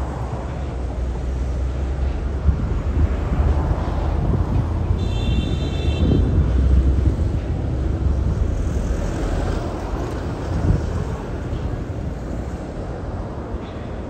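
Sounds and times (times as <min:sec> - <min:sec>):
road traffic rumble: 0:00.0 - 0:14.0
wind on microphone: 0:02.2 - 0:13.4.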